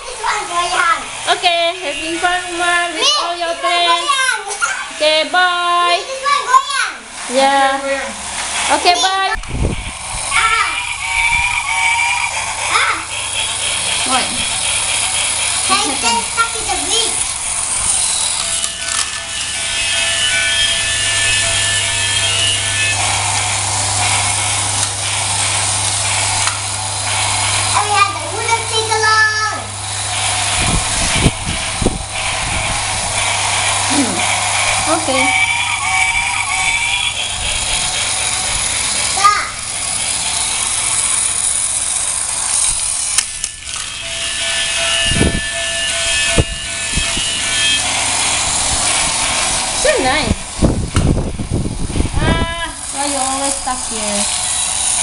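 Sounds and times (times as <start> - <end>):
thin steady whine: 0.0 - 55.0
toy train motors whirring: 0.0 - 55.0
electronic melody: 10.4 - 15.8, 33.3 - 39.0.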